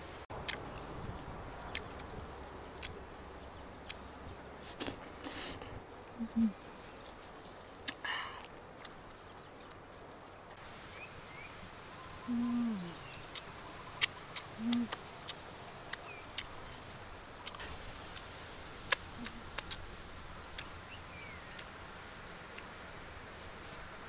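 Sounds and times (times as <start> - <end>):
person humming mmm: 4.7 - 6.6, 12.3 - 13.1, 14.6 - 15.0, 19.2 - 19.7
wet mouth clicks and lip smacks: 17.4 - 18.2, 18.9 - 19.8.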